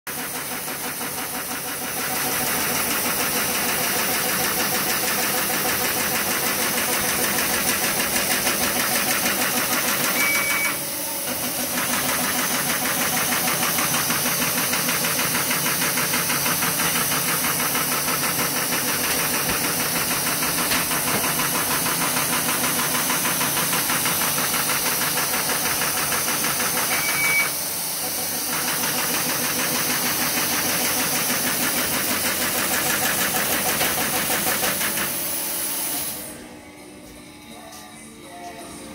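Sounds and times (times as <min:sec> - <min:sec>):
paper folder machine clatter: 0:00.2 - 0:10.2, 0:11.3 - 0:27.0, 0:28.2 - 0:35.2
short high beep: 0:10.0 - 0:10.8, 0:26.9 - 0:27.6.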